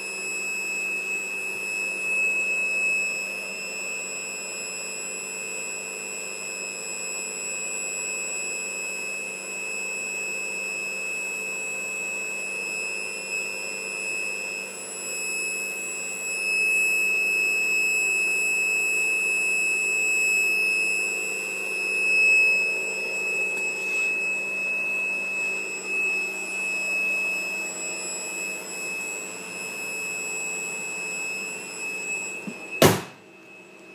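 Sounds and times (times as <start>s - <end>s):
high-pitched steady whistle: 0.0s - 33.9s
short knock: 32.5s - 33.2s.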